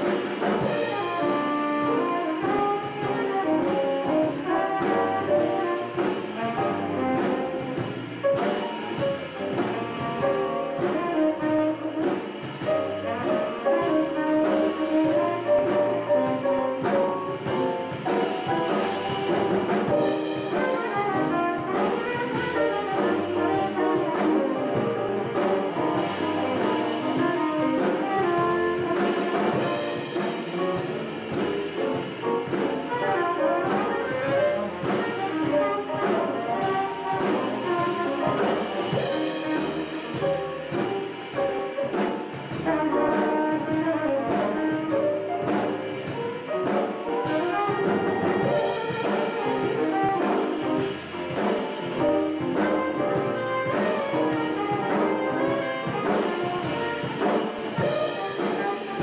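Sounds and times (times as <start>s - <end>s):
drums with cymbal strokes: 0.0s - 59.0s
piano: 0.0s - 59.0s
tenor saxophone lead: 0.0s - 59.0s
upright bass: 0.0s - 59.0s.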